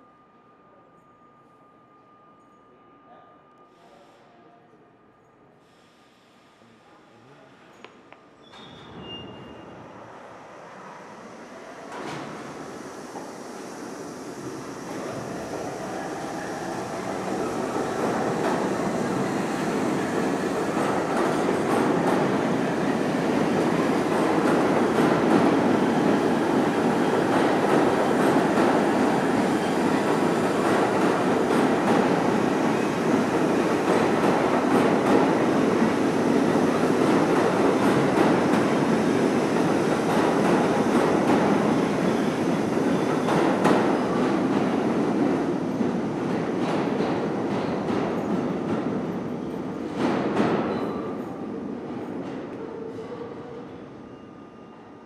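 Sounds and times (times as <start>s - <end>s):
subway train wheels rumbling: 3.0s - 55.0s.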